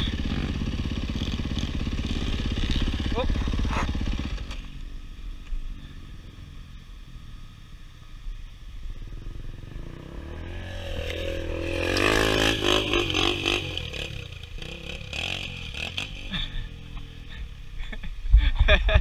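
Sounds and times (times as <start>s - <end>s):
dirt bike engine revving hard: 0.0s - 4.5s, 9.1s - 17.8s
motorcycle engine idling: 0.0s - 18.3s.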